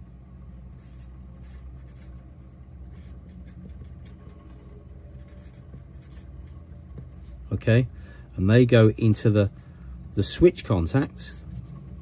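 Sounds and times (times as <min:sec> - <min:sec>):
low steady hum: 0:00.0 - 0:12.0
marker pen stroking paper: 0:00.7 - 0:02.2, 0:02.8 - 0:07.1.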